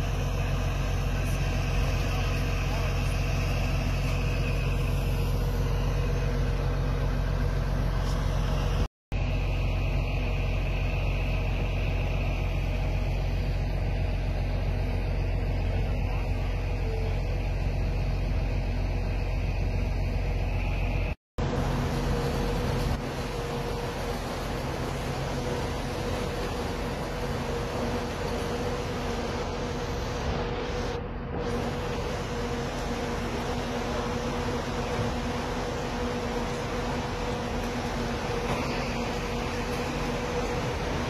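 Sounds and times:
road noise: 0:00.0 - 0:41.0
vehicle engine hum: 0:00.0 - 0:41.0.

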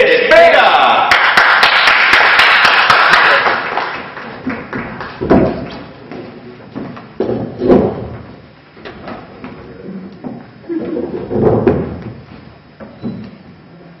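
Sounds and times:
audience applauding: 0:00.3 - 0:05.2
chairs set down on stage: 0:04.3 - 0:13.4.

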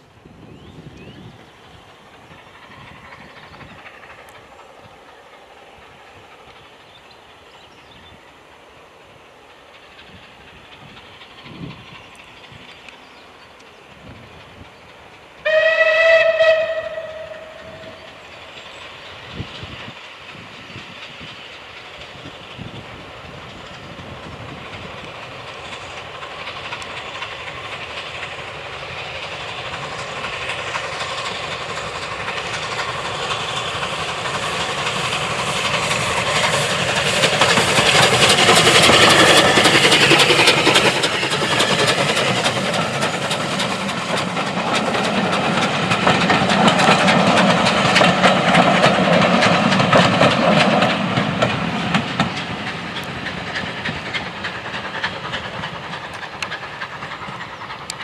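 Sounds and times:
steam locomotive exhaust: 0:00.0 - 0:58.0
train running noise: 0:00.0 - 0:58.0
steam locomotive whistle: 0:15.4 - 0:18.1.

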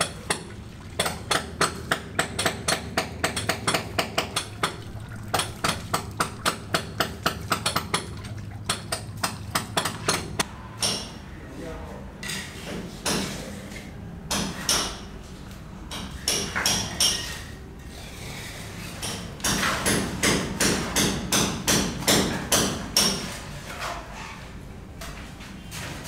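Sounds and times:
hand tool striking concrete: 0:00.0 - 0:08.1, 0:08.7 - 0:10.4.

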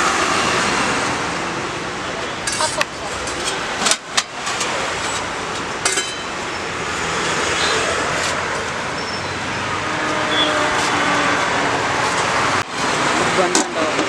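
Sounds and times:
roadside traffic noise: 0:00.0 - 0:14.0.

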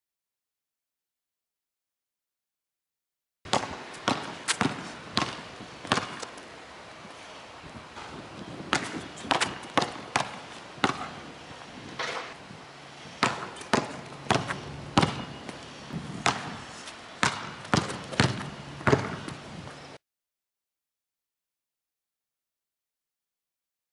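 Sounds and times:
basketball bouncing on asphalt: 0:03.5 - 0:06.4, 0:08.0 - 0:12.4, 0:13.0 - 0:19.8.

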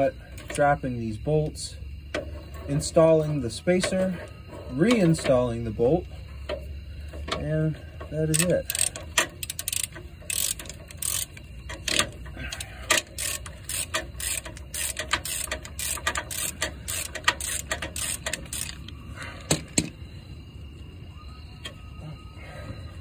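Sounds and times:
hand ratchet clicking: 0:06.4 - 0:19.9.

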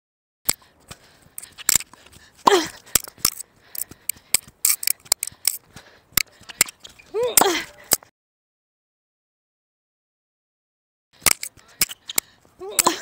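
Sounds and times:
short shoe squeak: 0:06.7 - 0:07.3.

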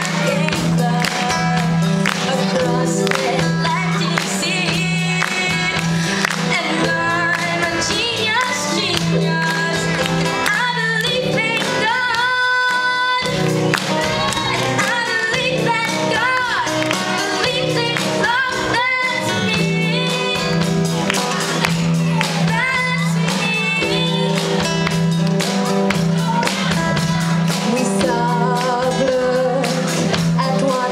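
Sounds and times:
girl singing: 0:00.0 - 0:24.9, 0:26.0 - 0:30.9
live band with drum kit: 0:00.0 - 0:30.9.

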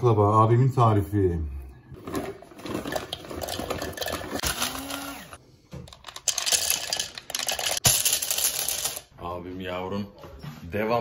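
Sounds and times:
nuts clattering into plastic cup: 0:05.9 - 0:09.1.

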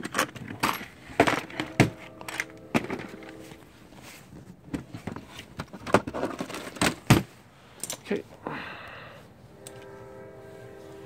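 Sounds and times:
hand tools clattering in a case: 0:00.0 - 0:03.6, 0:04.7 - 0:08.0.

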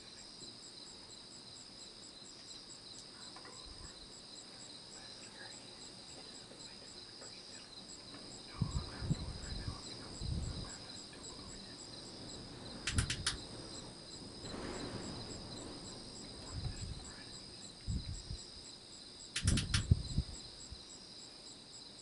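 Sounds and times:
insect trilling: 0:01.8 - 0:21.0
low thumps: 0:12.2 - 0:18.5, 0:19.4 - 0:20.4
sharp clicks: 0:12.8 - 0:13.5, 0:19.3 - 0:20.0.

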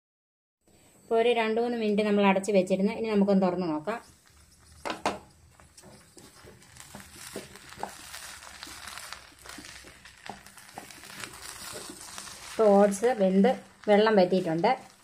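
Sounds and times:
faint sizzle: 0:00.7 - 0:15.0
wooden spatula scraping a pan: 0:04.0 - 0:15.0.

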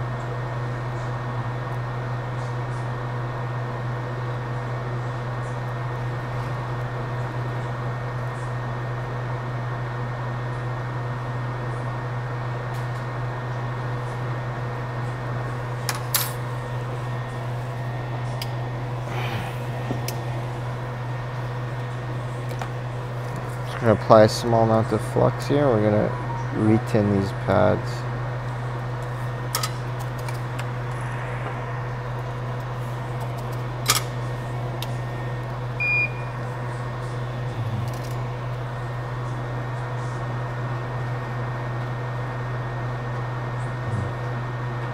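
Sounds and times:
fan whirring: 0:00.0 - 0:44.9
low hum: 0:15.4 - 0:23.8, 0:28.2 - 0:39.5.

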